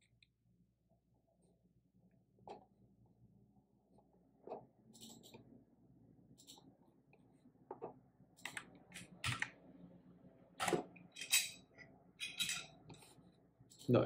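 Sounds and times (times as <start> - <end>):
computer mouse clicking: 8.4 - 9.5.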